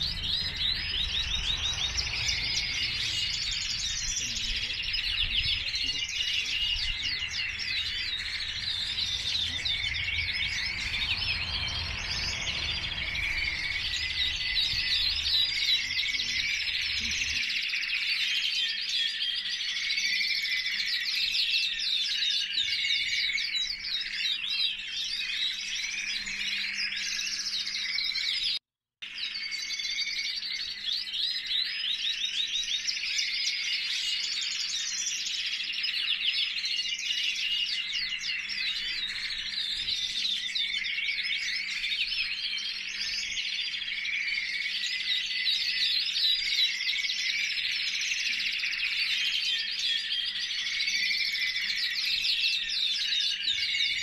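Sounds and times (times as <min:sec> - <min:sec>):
low rumble: 0:00.0 - 0:05.6, 0:06.8 - 0:15.8
canaries trilling and warbling: 0:00.0 - 0:54.0.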